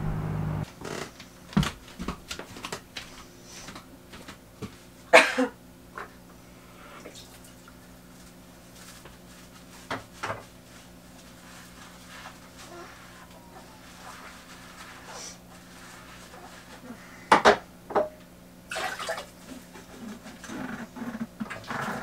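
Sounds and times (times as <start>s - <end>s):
person coughing: 5.1s - 5.6s.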